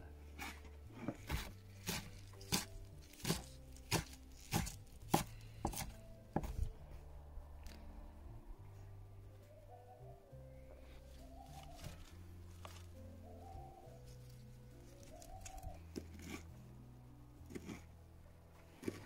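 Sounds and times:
knife chopping on wooden board: 0:00.4 - 0:06.6.

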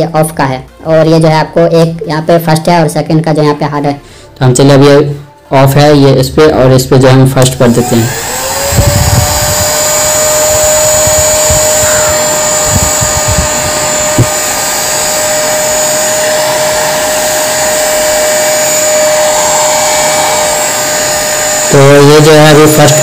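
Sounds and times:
hair dryer running: 0:07.4 - 0:23.0.

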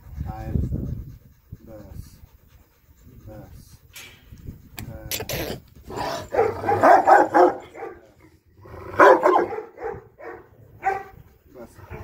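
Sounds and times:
dog barking: 0:06.3 - 0:08.1, 0:09.0 - 0:11.2.

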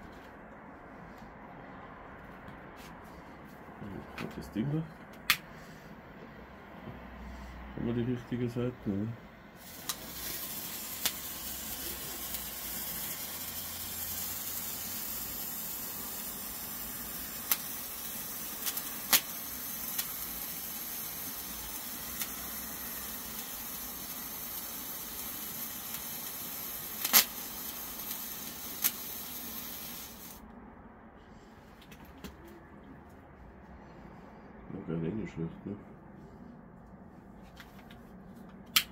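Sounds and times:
sparkler cracks: 0:09.6 - 0:30.4
sparkler fizzing hiss: 0:09.6 - 0:30.4.

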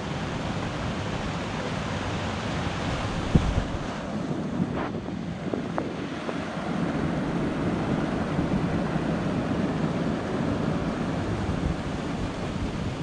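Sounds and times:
waterfall rushing: 0:00.0 - 0:04.8.

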